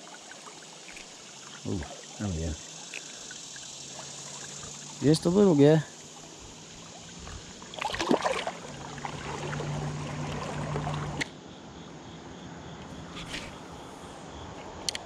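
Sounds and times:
river water rushing: 0.0s - 11.2s
water splashing: 0.0s - 11.3s.

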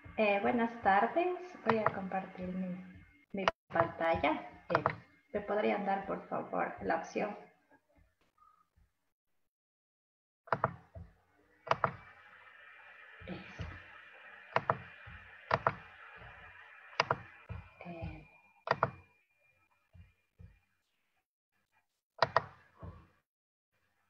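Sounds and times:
computer mouse clicks: 10.5s - 10.9s, 11.7s - 12.1s, 14.5s - 14.9s, 15.5s - 15.9s, 17.0s - 17.3s, 18.7s - 19.0s, 22.2s - 22.6s.

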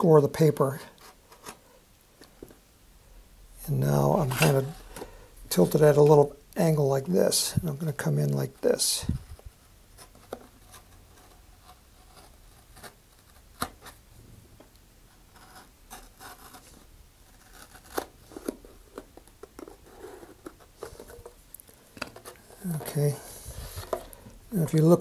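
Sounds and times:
knife scraping through paper tube: 15.3s - 18.8s.

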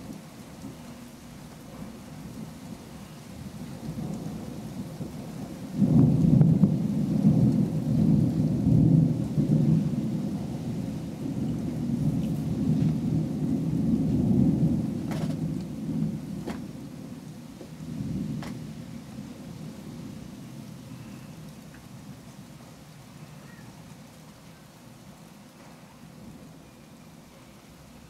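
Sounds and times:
rolling thunder: 0.0s - 20.8s.

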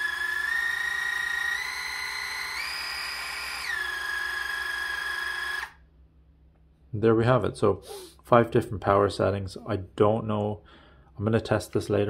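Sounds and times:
water flosser motor whine: 0.0s - 5.8s.

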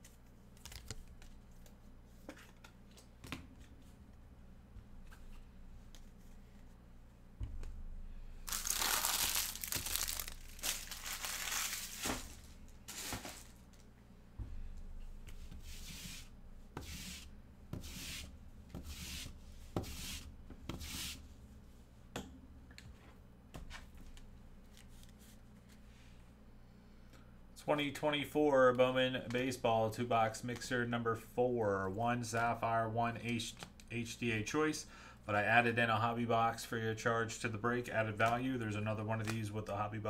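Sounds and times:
foil wrappers crinkling: 8.5s - 13.9s.

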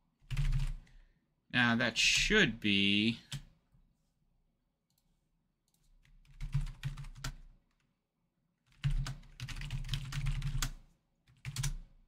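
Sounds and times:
typing on computer keyboard: 0.2s - 0.8s, 5.7s - 7.9s, 8.6s - 11.9s.

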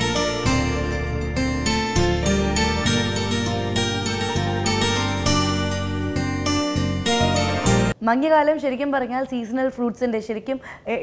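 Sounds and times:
instrumental theme music: 0.0s - 8.0s.

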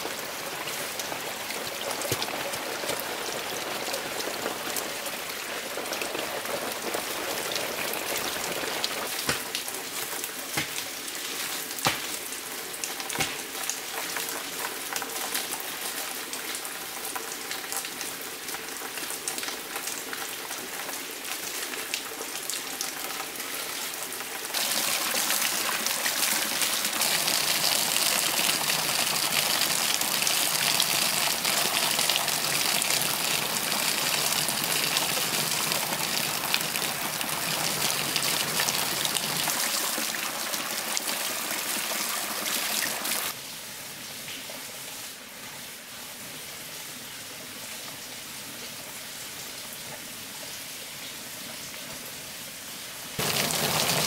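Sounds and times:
water pouring onto rocks: 24.5s - 43.4s, 53.2s - 54.0s.

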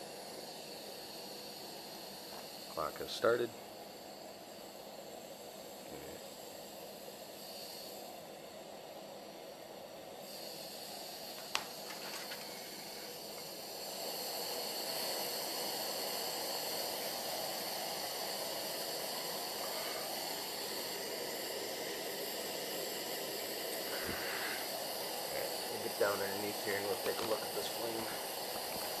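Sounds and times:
stove burner rushing: 0.0s - 29.0s.

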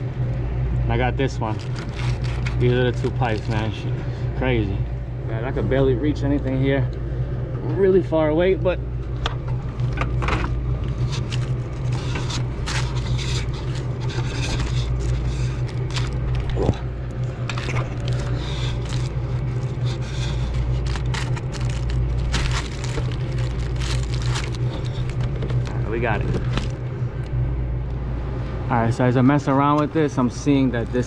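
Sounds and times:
steady low hum: 0.0s - 31.0s
scraping and crackling of foam pipes: 1.4s - 3.8s, 9.7s - 16.8s, 17.4s - 26.8s.

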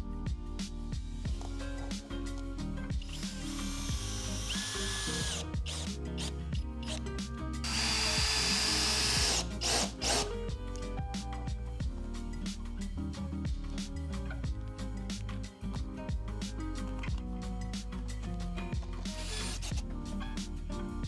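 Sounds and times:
background music: 0.0s - 21.0s
power driver running screws: 3.1s - 7.0s, 7.6s - 10.3s, 19.2s - 19.8s.

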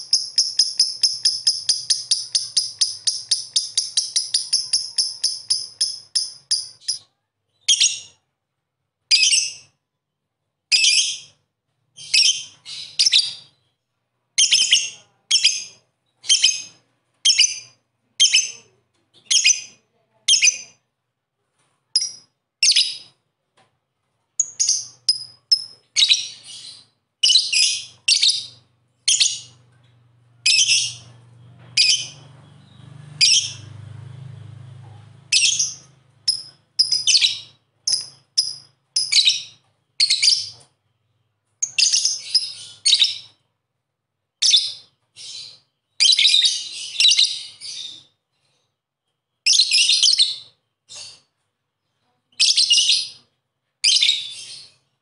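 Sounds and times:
lovebird chirping: 0.0s - 8.2s, 12.0s - 13.8s, 14.4s - 20.8s, 22.0s - 23.2s, 24.4s - 33.8s, 35.3s - 43.4s, 44.4s - 48.1s, 49.4s - 51.3s, 52.3s - 53.2s, 53.8s - 54.9s.

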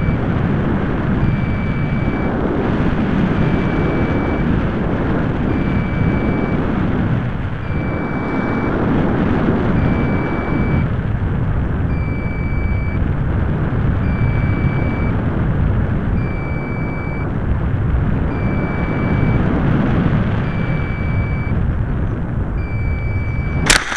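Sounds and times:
wind noise on microphone: 0.0s - 23.9s
high electronic beep: 1.2s - 2.3s, 7.6s - 8.8s, 9.8s - 10.9s, 11.9s - 13.0s, 14.0s - 15.1s, 16.2s - 17.3s, 18.3s - 19.4s, 20.4s - 21.6s, 22.6s - 23.7s.

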